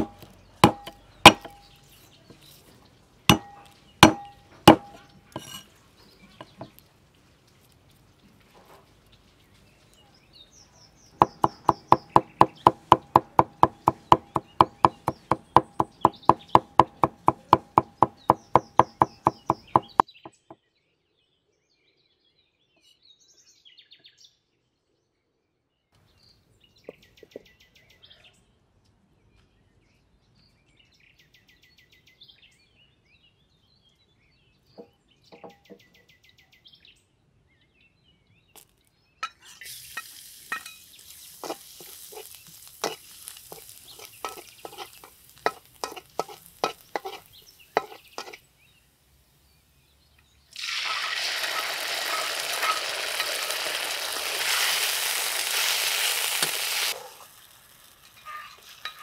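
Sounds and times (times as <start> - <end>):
cleaver chopping on wooden board: 0.0 - 1.6, 3.3 - 5.6, 11.2 - 20.0.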